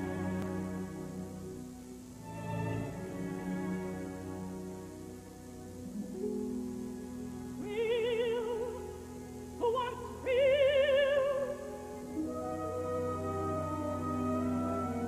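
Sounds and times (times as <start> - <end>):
operatic soprano singing: 6.0 - 15.0
orchestral chords: 11.7 - 15.0.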